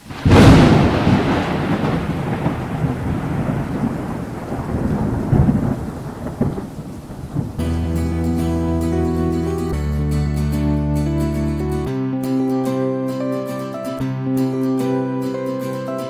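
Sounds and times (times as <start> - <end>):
thunder rolling: 0.0 - 7.6.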